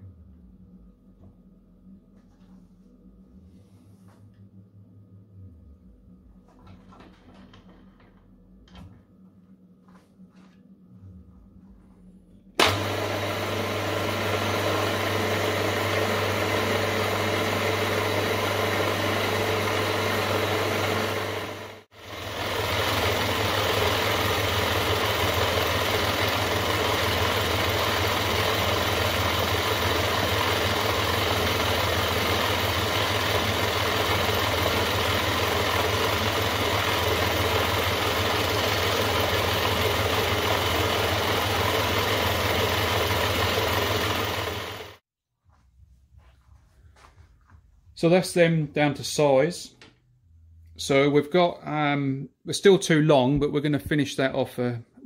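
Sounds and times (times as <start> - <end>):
milling machine running: 12.6 - 45.0.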